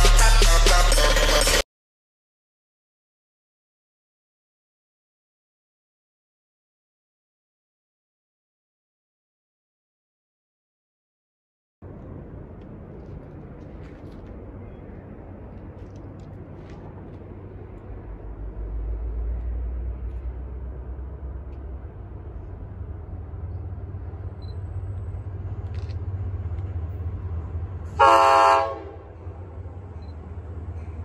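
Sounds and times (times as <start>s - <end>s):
diesel locomotive rumble: 11.8s - 31.0s
train horn blast: 27.9s - 29.4s.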